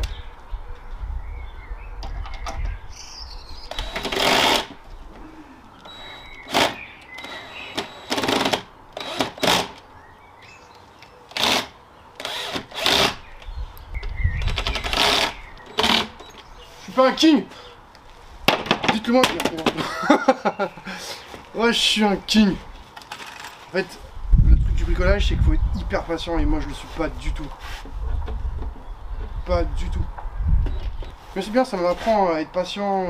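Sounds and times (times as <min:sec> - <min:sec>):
birds chirping faintly: 0:00.0 - 0:18.3, 0:19.8 - 0:22.9, 0:28.3 - 0:33.0
cordless drill driving screws: 0:03.7 - 0:04.8, 0:05.8 - 0:09.8, 0:11.3 - 0:13.2, 0:14.4 - 0:16.5.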